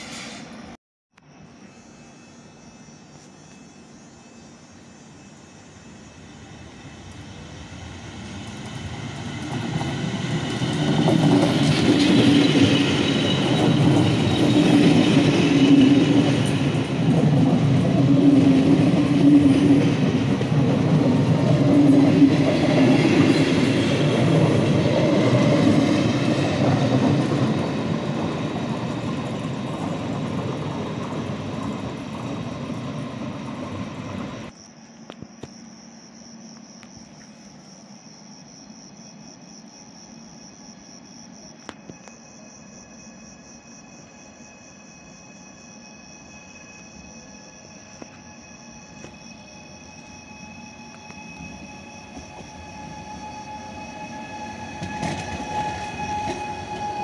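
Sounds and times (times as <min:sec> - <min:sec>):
train wheels on rails: 0:00.0 - 0:00.8, 0:04.7 - 0:35.6, 0:43.1 - 0:57.0.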